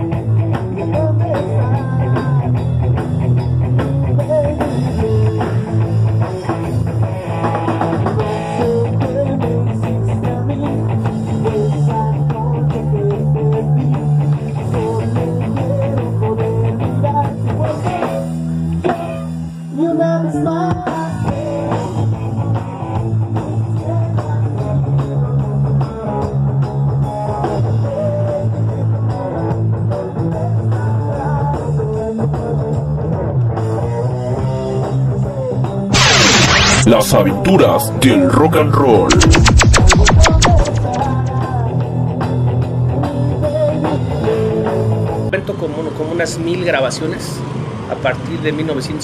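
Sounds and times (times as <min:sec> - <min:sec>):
rock and roll dance music: 0:35.9 - 0:41.7.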